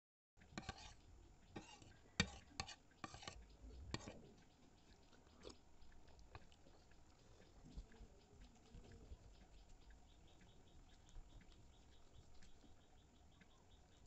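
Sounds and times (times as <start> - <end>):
metal spoon scraping plastic bowl: 0.6 - 4.2.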